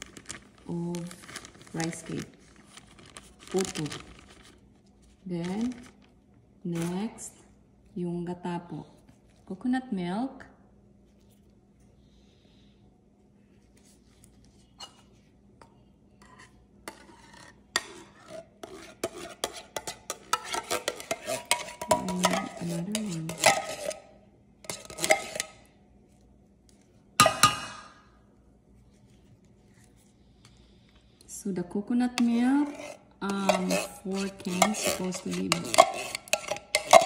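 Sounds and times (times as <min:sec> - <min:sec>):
spoon scraping a container: 0:16.2 - 0:25.6, 0:32.2 - 0:37.0.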